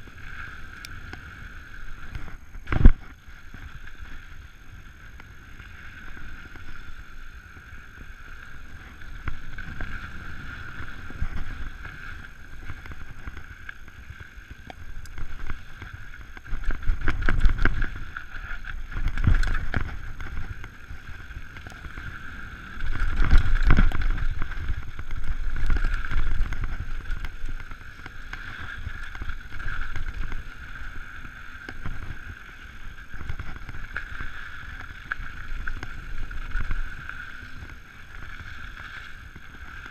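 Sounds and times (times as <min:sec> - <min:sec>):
wind rushing over microphone: 0:00.0 - 0:39.9
tyres rolling on dirt: 0:02.7 - 0:39.9
bike rattling and knocking: 0:14.6 - 0:30.5.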